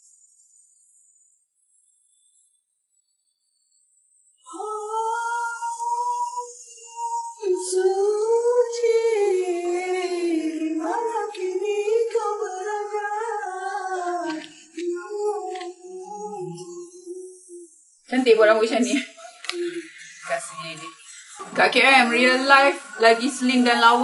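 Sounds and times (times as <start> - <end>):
woman singing wordless melody: 4.5 - 20.1, 21.6 - 24.0.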